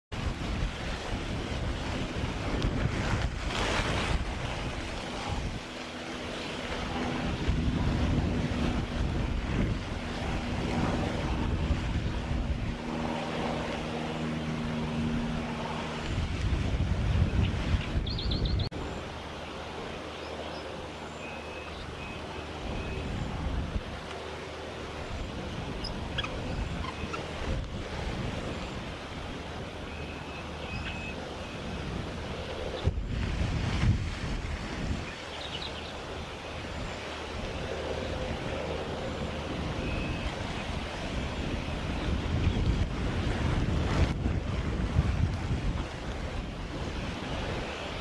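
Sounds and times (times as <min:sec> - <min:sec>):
wind rumbling on microphone: 0:00.1 - 0:48.0
bird chirping: 0:18.0 - 0:18.7.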